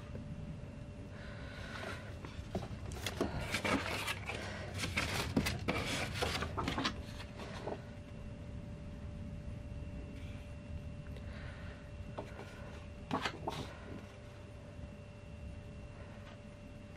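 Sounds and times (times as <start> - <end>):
packaging rustling and crinkling: 2.4 - 7.8.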